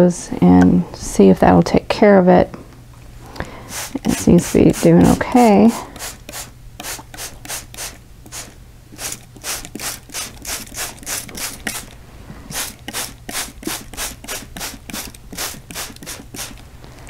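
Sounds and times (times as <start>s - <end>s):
spray bottle squirts: 3.7s - 5.2s, 6.0s - 11.9s, 12.5s - 16.6s.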